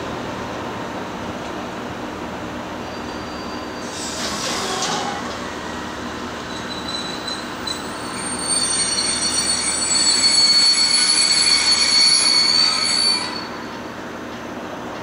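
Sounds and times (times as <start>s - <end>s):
rumble of train wagons: 0.0s - 15.0s
train wheels squealing: 2.8s - 13.9s.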